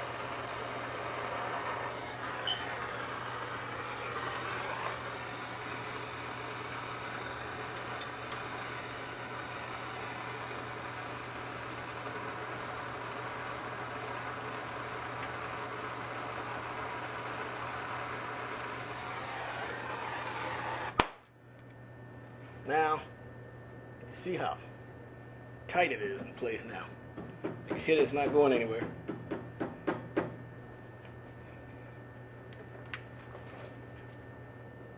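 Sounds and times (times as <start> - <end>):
soldering torch hissing: 0.0 - 21.1.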